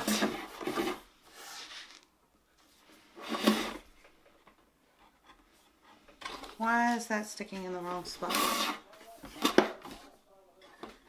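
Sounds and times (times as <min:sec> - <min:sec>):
panel scraping on panel: 0:08.1 - 0:09.6.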